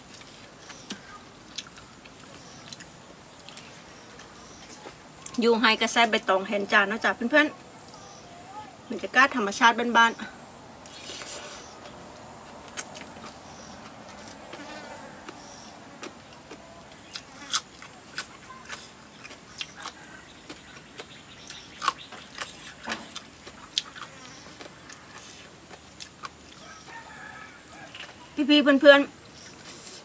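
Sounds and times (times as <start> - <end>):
person chewing crunchy food: 0.0 - 5.4, 10.9 - 27.1
insect buzzing: 13.3 - 15.8, 23.9 - 24.6.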